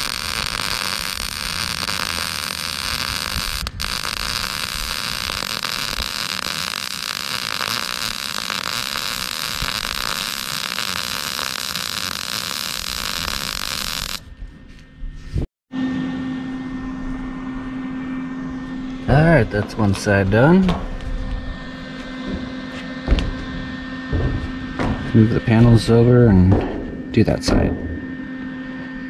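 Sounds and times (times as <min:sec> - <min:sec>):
welding arc crackling hiss: 0:00.0 - 0:14.3.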